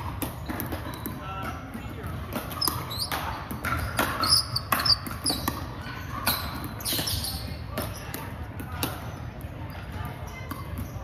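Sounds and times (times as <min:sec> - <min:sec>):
paddles hitting plastic ball: 0:00.0 - 0:09.1
ball bouncing: 0:00.0 - 0:11.0
sneaker squeaks on wooden floor: 0:02.5 - 0:08.1.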